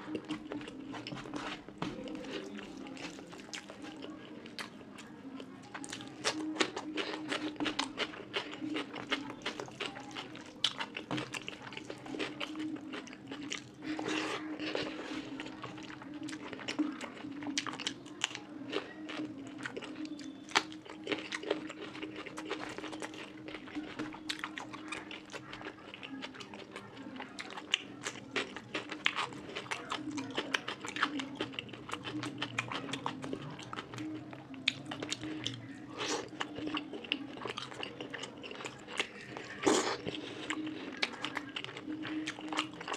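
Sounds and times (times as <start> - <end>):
chewing with wet mouth sounds: 0.0 - 42.9.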